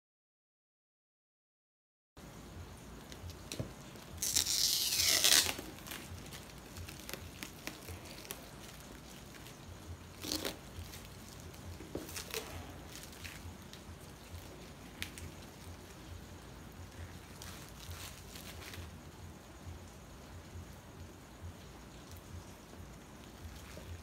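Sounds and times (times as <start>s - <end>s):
plastic wrapping ripping: 3.0s - 16.1s, 17.1s - 19.0s
plastic crinkling: 3.0s - 19.2s.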